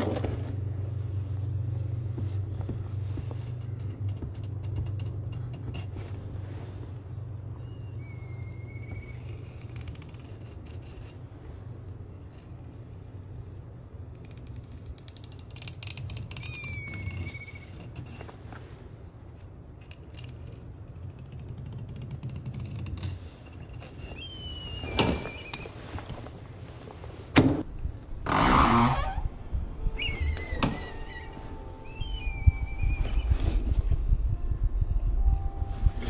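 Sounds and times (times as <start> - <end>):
steady low hum: 0.0 - 36.0
short high whistling tones: 24.1 - 25.7, 29.8 - 33.9.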